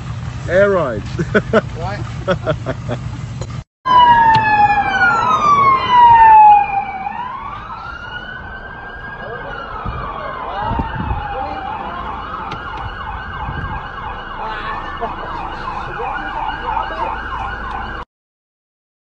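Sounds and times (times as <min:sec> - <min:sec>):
police siren wailing and yelping: 0:03.9 - 0:18.0.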